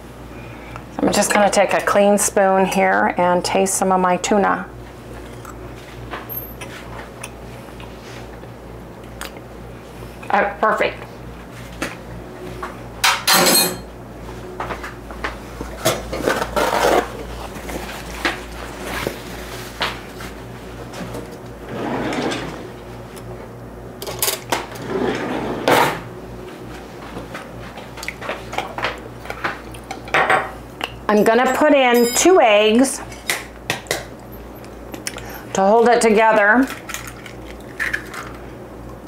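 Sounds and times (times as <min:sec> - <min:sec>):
dishes and cutlery clattering: 0:13.1 - 0:13.9.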